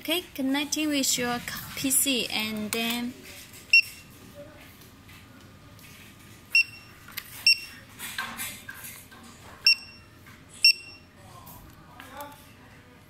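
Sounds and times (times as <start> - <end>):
barcode scanner beeping: 6.5 - 7.8, 9.7 - 11.0.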